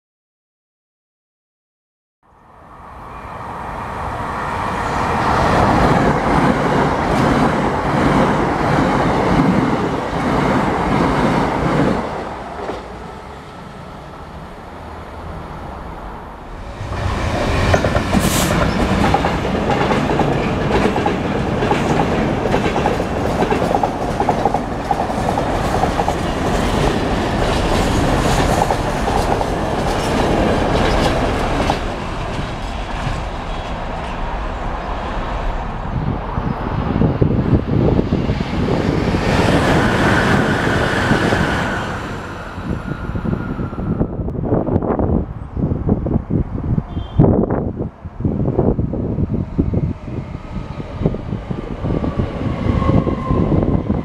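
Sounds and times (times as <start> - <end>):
diesel locomotive passing: 2.4 - 54.0
train wheels clickety-clack: 17.0 - 34.3.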